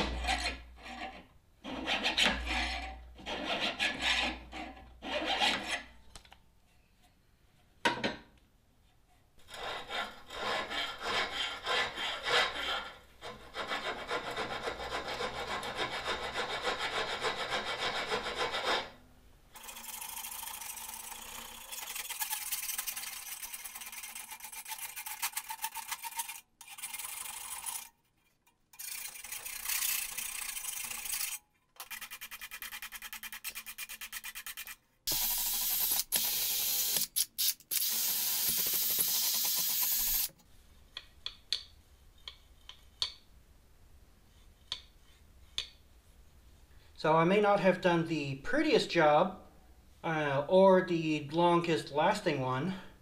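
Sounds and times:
file scraping on steel: 0.0 - 6.0, 9.4 - 19.0, 28.7 - 34.8.

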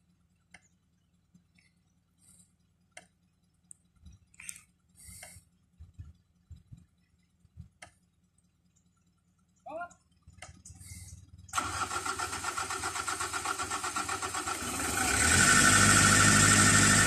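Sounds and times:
faint clicks: 0.4 - 9.1.

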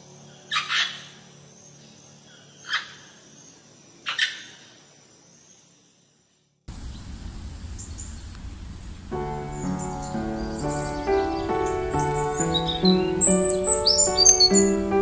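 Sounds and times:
outdoor rushing noise: 6.7 - 13.8.

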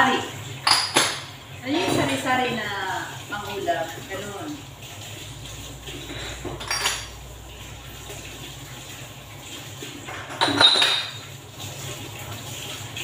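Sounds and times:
dishes clinking in steel bowl: 0.6 - 2.1, 6.1 - 7.2, 10.1 - 11.3
utensils clattering: 6.0 - 7.2, 10.0 - 11.3.

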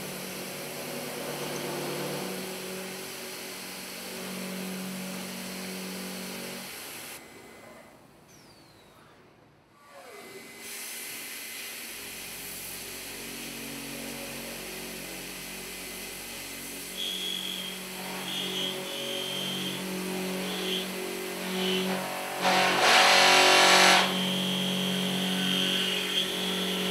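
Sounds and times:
milling machine cutting steel: 16.2 - 26.9
high whine: 16.8 - 26.9.

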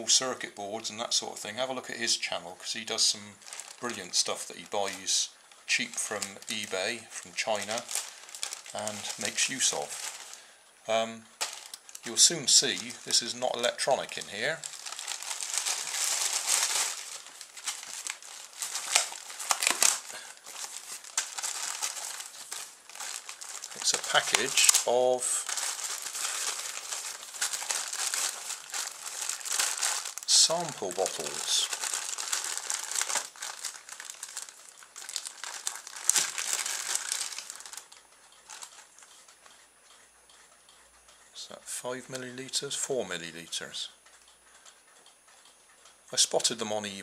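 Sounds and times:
plastic and foam wrap crinkling: 2.7 - 39.6.

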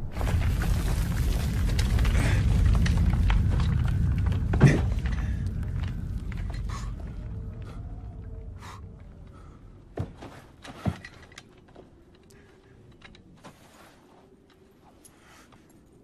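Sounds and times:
low rumble: 0.0 - 10.0.

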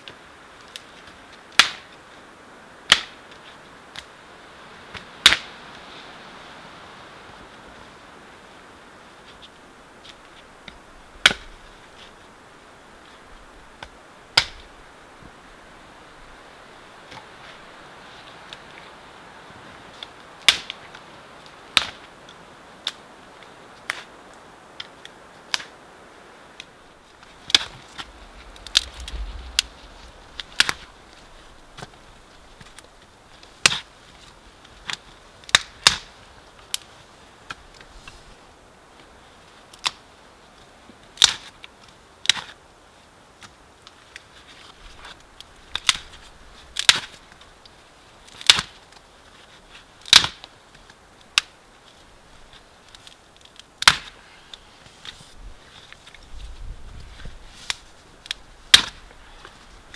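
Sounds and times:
dry twigs snapping: 4.9 - 5.6, 13.8 - 14.8, 20.0 - 25.8, 26.6 - 37.9, 39.7 - 40.0, 40.6 - 42.6, 43.4 - 59.9.

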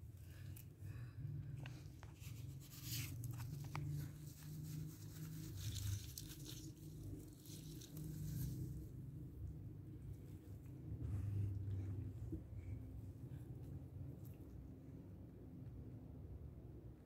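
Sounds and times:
low background hum: 0.0 - 17.0
leaves rustling: 2.2 - 8.9.

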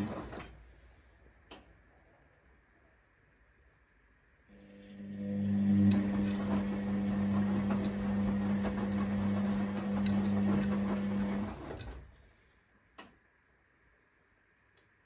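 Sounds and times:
washing machine motor hum: 0.0 - 0.7, 4.5 - 12.3.

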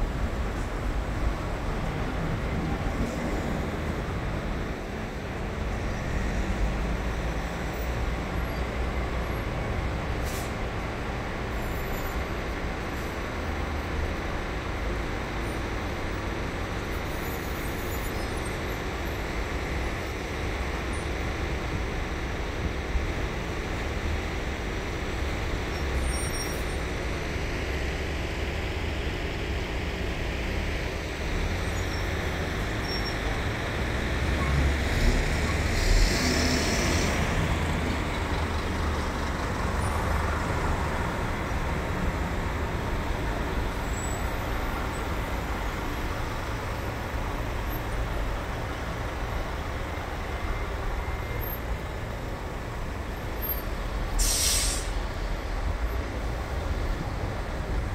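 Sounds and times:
bus passing: 0.0 - 57.9
traffic rumble: 0.0 - 57.9
short hiss: 54.1 - 55.0.

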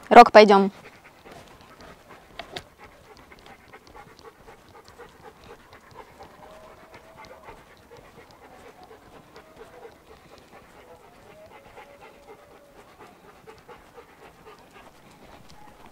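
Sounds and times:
dog panting: 0.0 - 15.9.

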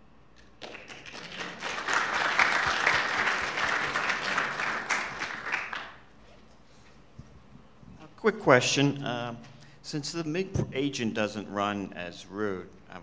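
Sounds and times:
audience applauding: 0.5 - 6.1.

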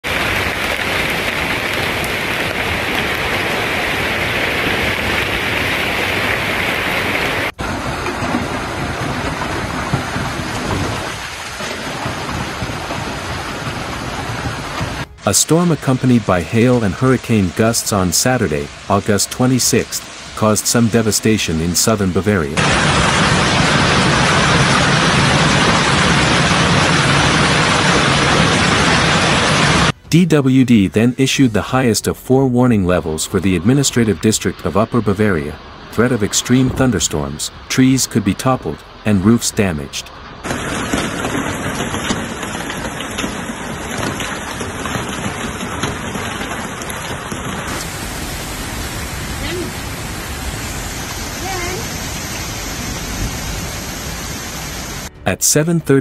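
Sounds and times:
gusting storm wind: 0.0 - 30.0, 33.6 - 55.1
hailstones pelting down: 0.0 - 30.0, 40.4 - 55.1.

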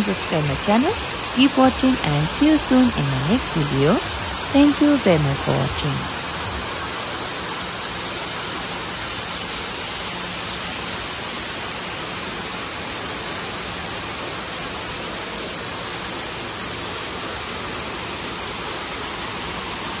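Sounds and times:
steady rushing noise: 0.0 - 9.4.

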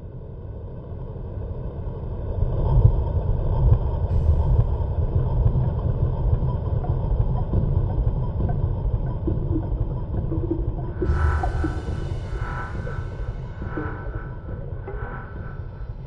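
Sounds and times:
rumbling noise texture: 0.4 - 16.0
synth sustained tones: 10.2 - 16.0.

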